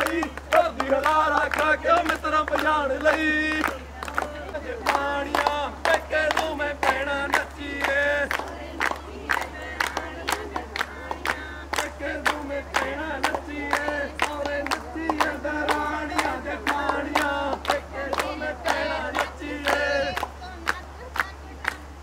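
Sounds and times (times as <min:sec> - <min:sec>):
crowd singing and chanting: 0:00.0 - 0:22.0.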